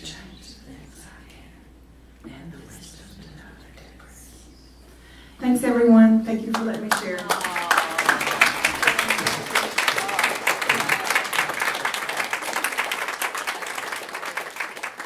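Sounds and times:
voices: 5.4 - 11.7
audience applauding: 6.5 - 15.0.

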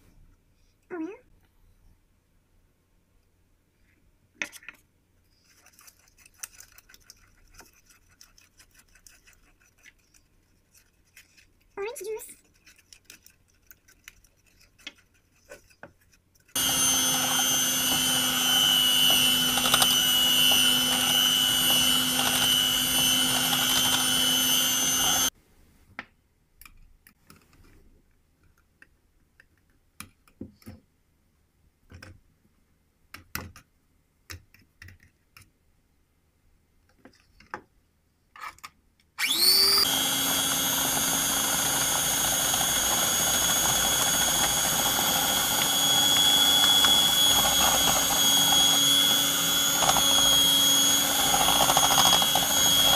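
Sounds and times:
flour sifting through metal sieve: 5.3 - 19.8
electric hand mixer whirring: 16.5 - 25.3, 39.2 - 52.9.

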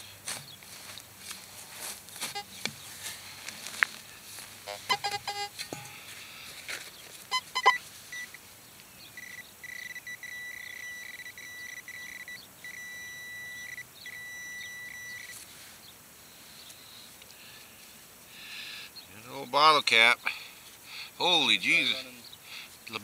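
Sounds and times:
metal detector pinpointer tone: 2.2 - 2.7, 4.6 - 6.0, 7.3 - 8.4, 9.2 - 15.4
short beeps: 2.3 - 2.6, 4.7 - 6.0, 7.3 - 8.4, 9.2 - 15.4.

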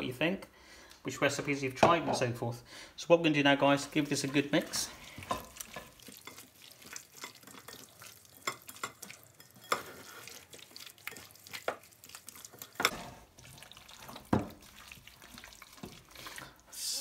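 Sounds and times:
wet squishes of mixing meat: 3.8 - 16.8.

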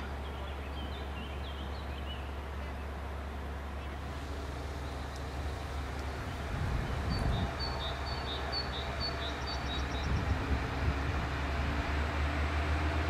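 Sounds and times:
distant diesel railcar rumble: 0.0 - 13.0
small bird singing: 0.2 - 2.4, 6.2 - 10.3.

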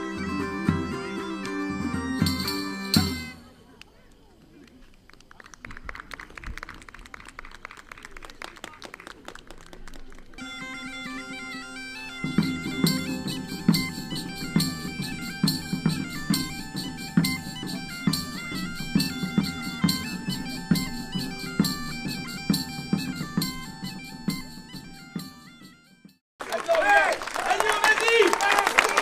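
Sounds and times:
bagpipe tune over a drone: 0.0 - 3.4, 10.4 - 26.0
regular drum beat: 0.6 - 3.4, 12.2 - 25.6.

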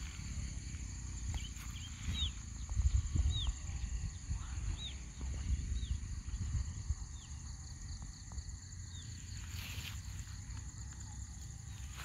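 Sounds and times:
wind buffeting microphone: 0.0 - 8.7
insects droning: 0.0 - 12.0
bird chirping: 1.0 - 7.6.

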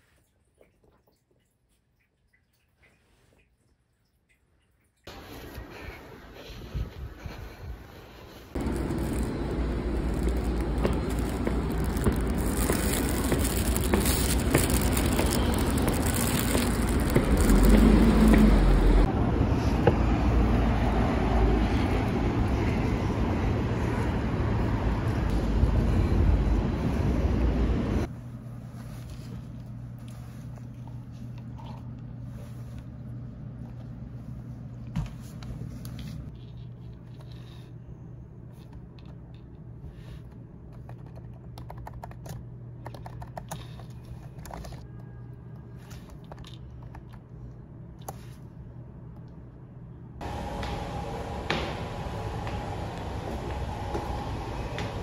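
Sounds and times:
low steady hum: 0.0 - 55.0
keyboard typing clicks: 40.8 - 43.6.

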